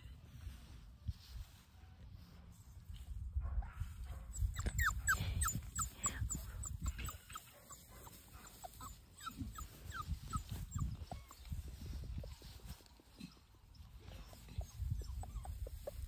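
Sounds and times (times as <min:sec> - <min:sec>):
puppy whimpering: 0:04.4 - 0:07.9, 0:08.6 - 0:12.5, 0:13.2 - 0:16.0.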